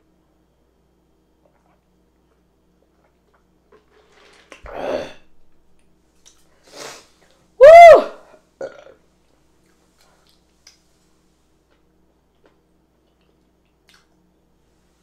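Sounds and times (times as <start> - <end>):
loud human burp: 4.7 - 5.3, 8.6 - 9.0.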